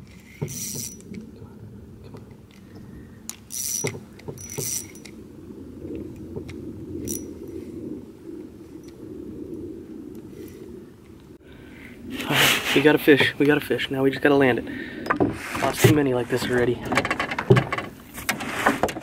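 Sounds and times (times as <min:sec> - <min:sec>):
fishing reel cranking: 0:00.0 - 0:01.2, 0:03.3 - 0:05.2, 0:07.0 - 0:07.3
reel drag buzzing: 0:00.0 - 0:01.2, 0:03.3 - 0:05.2, 0:06.4 - 0:07.3.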